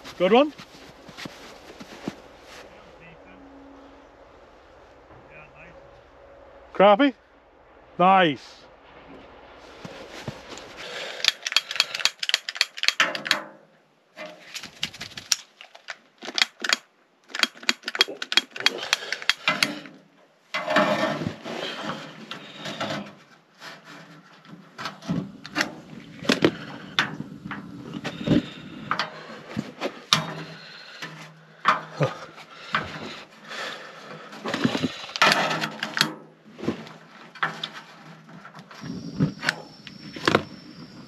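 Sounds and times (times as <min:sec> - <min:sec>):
rustling: 0:00.0 - 0:06.4, 0:08.7 - 0:13.4, 0:14.2 - 0:16.7, 0:17.3 - 0:41.0
sharp clicks and knocks: 0:11.2 - 0:13.6, 0:14.2 - 0:20.0, 0:34.5 - 0:36.2.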